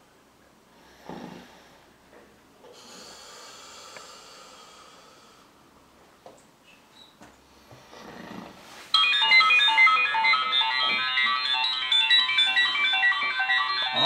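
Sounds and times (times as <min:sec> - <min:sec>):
alarm ringtone melody: 0:09.0 - 0:14.0.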